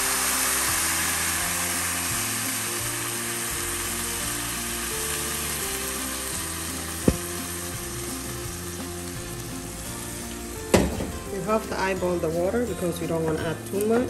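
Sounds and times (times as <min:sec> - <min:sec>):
rice sizzling and hissing: 0:00.0 - 0:12.2
faint background music: 0:00.0 - 0:14.0
sharp knock: 0:07.0 - 0:07.3.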